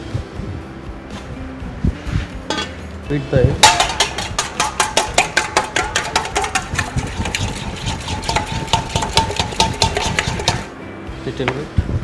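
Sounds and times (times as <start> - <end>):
egg beaten in metal bowl: 3.6 - 10.7.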